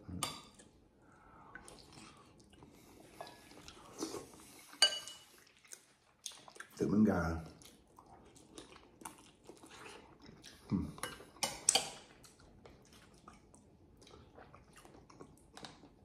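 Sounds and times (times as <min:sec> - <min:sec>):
person chewing with lip smacks: 0:05.4 - 0:06.8.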